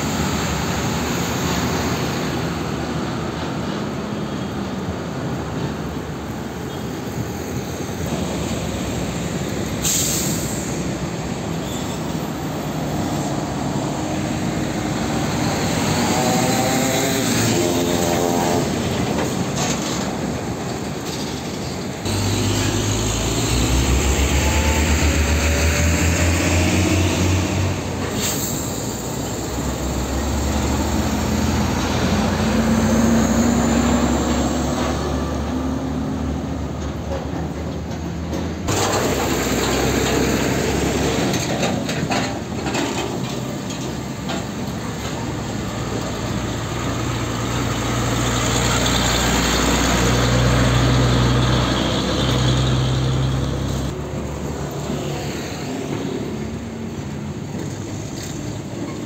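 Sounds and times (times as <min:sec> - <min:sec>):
trucks driving past: 0:00.0 - 0:59.0
engine accelerating: 0:14.8 - 0:18.8, 0:22.0 - 0:28.1, 0:29.4 - 0:36.0
deep truck engine drone: 0:21.9 - 0:59.0.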